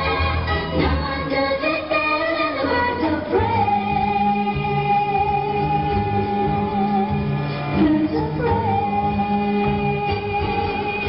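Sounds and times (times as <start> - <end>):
pop song over sound system: 0.0 - 11.0.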